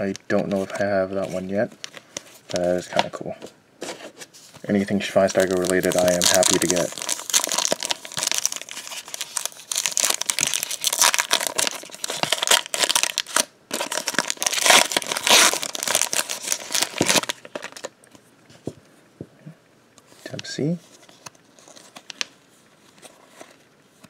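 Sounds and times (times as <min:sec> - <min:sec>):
foil wrapper crinkling and tearing: 0:05.0 - 0:17.9.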